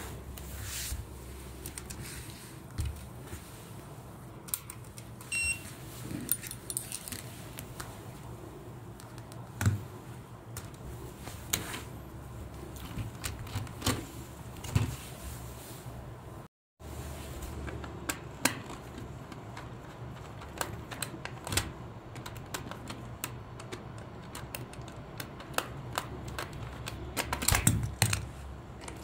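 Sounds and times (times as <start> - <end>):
short electronic beep: 5.3 - 5.7.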